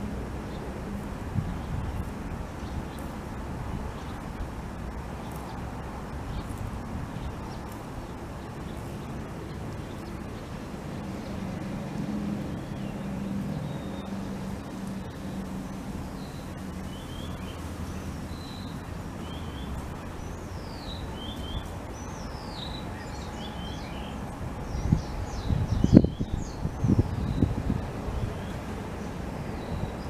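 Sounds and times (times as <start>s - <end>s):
distant traffic hum: 0.0s - 30.0s
wind buffeting microphone: 0.0s - 30.0s
small bird chirping: 5.2s - 10.5s, 12.5s - 28.6s.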